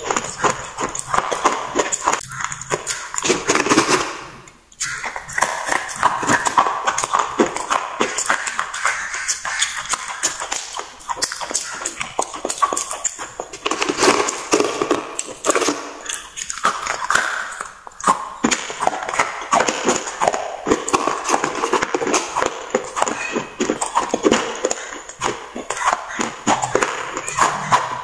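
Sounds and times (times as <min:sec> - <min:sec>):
slate pencils crunching: 0:00.0 - 0:04.4, 0:05.2 - 0:28.0.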